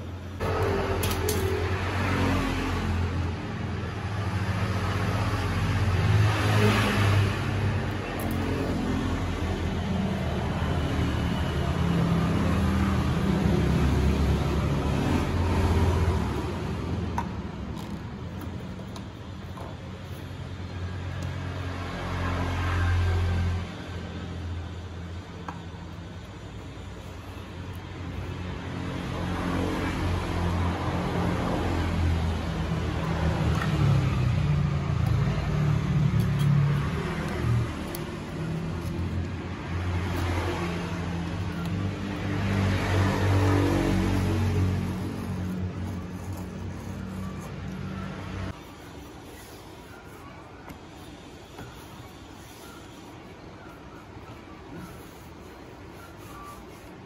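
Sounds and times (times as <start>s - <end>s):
vehicle engine humming: 24.3s - 57.0s.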